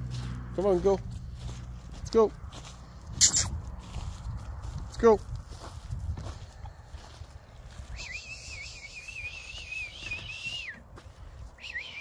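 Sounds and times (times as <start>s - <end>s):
person whistling a wavering note: 7.9s - 10.8s.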